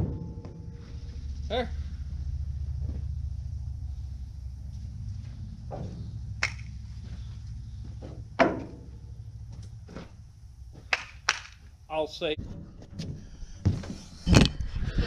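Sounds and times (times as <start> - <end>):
steel pipes knocking and clunking: 0.0 - 3.7, 4.9 - 7.2, 7.8 - 11.7
steady low rumble: 0.0 - 15.0.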